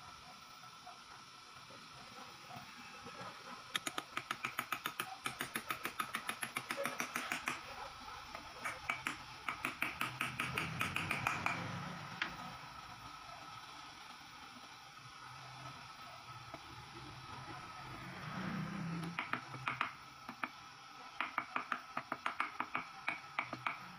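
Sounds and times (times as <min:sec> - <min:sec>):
small hammer tapping on steel: 0:03.8 - 0:07.6, 0:08.7 - 0:11.7, 0:19.2 - 0:20.6, 0:21.2 - 0:23.8.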